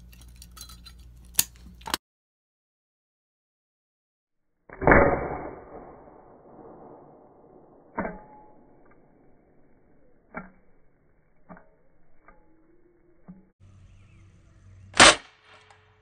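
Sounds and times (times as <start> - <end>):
loud ringing impact: 4.7 - 9.6.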